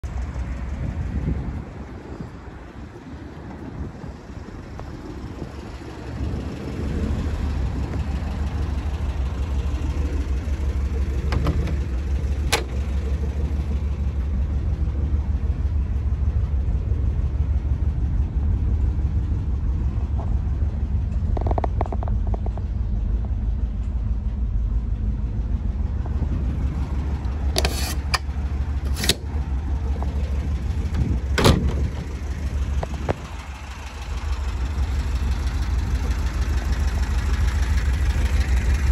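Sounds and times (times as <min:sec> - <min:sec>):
engine idling: 0:00.0 - 0:38.9
sharp clicks and knocks: 0:11.2 - 0:13.0, 0:21.0 - 0:24.0, 0:27.2 - 0:29.3.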